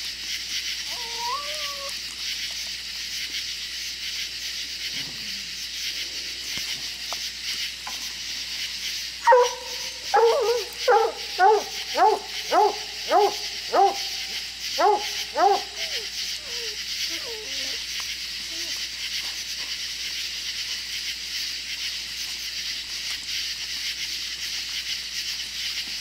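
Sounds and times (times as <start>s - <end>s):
steady high hiss: 0.0s - 26.0s
puppies yipping barks: 0.9s - 1.9s, 9.2s - 17.9s.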